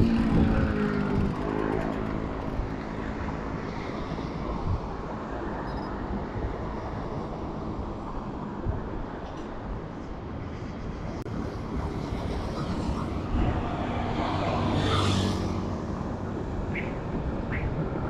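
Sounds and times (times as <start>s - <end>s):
wind rushing over microphone: 0.0s - 18.0s
vehicle engine passing by: 11.9s - 16.7s.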